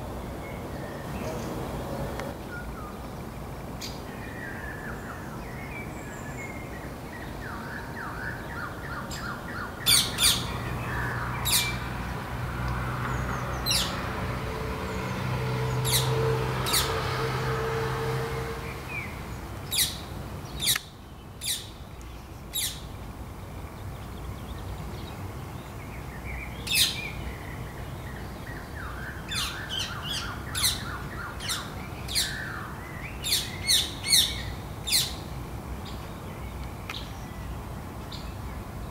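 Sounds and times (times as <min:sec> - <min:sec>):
parakeet shrill calls: 0:09.9 - 0:10.5.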